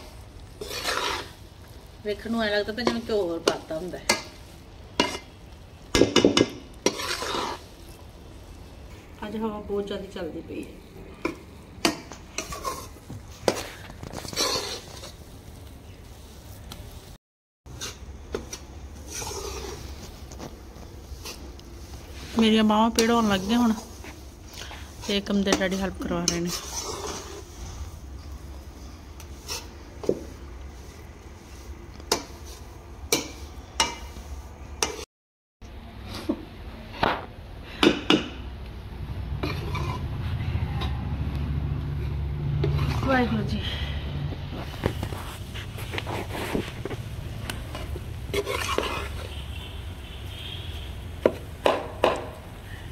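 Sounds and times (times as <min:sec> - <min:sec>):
metal spoon scraping pan: 0:00.5 - 0:01.4, 0:02.1 - 0:07.9, 0:11.1 - 0:15.2, 0:17.7 - 0:20.5, 0:21.2 - 0:30.2, 0:34.8 - 0:35.0, 0:39.3 - 0:41.0, 0:42.0 - 0:43.8, 0:47.5 - 0:50.2.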